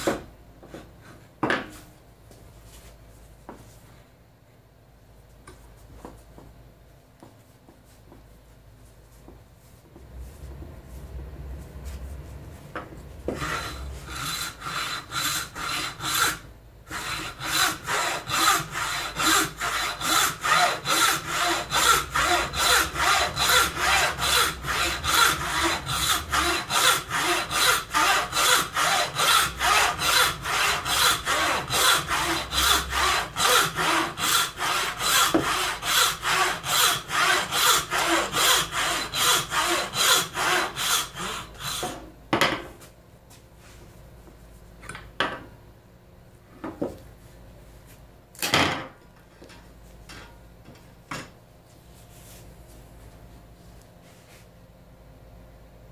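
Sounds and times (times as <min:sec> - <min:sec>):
bow saw cutting wood: 0:13.3 - 0:42.0.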